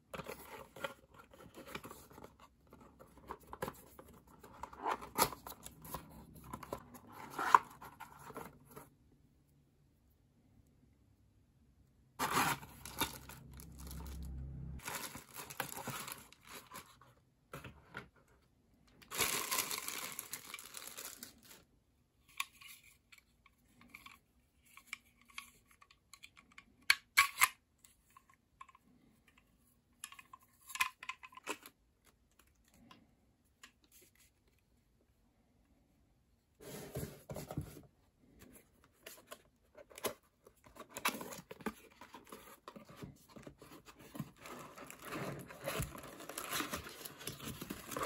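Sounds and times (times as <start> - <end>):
packaging rustling and crinkling: 12.2 - 17.0, 19.0 - 21.6, 40.7 - 48.0.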